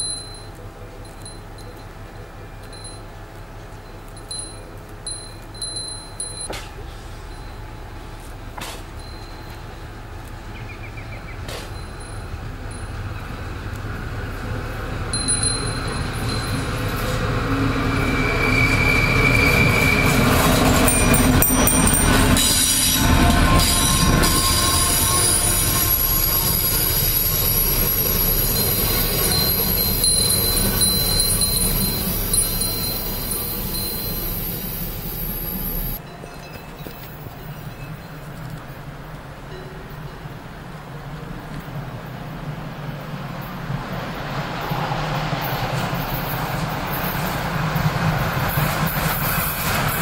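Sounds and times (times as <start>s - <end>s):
train rumble passing: 0.0s - 50.0s
train wheels squealing: 15.2s - 38.5s.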